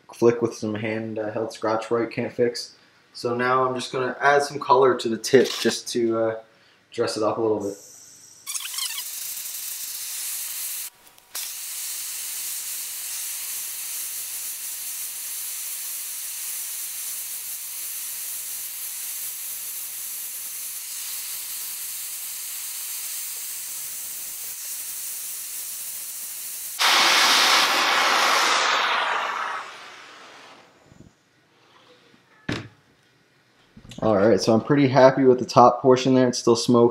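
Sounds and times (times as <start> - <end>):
gas torch flame hissing: 7.6 - 31.1.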